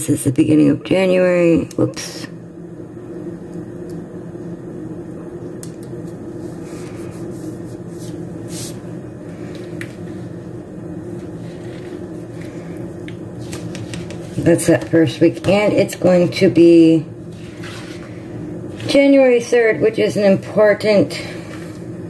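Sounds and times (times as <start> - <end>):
low mechanical hum: 0.0 - 22.0
paper rustling: 17.4 - 18.2.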